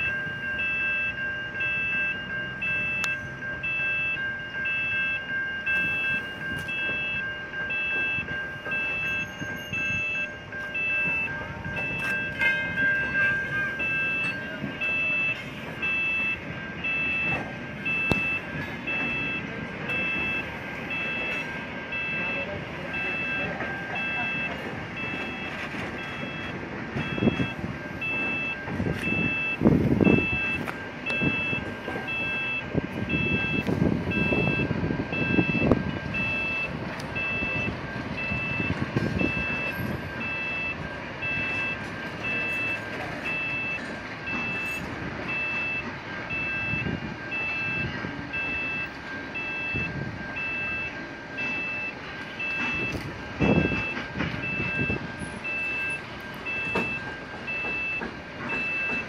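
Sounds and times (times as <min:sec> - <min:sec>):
train wheels rumbling on rails: 0:00.0 - 0:59.0
train clunks: 0:05.1 - 0:59.0
level crossing bell ringing: 0:07.8 - 0:25.4.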